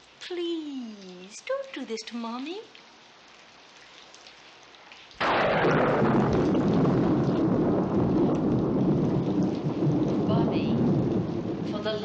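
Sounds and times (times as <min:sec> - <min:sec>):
rain: 0:00.0 - 0:12.0
thunder rumbling: 0:05.2 - 0:12.0.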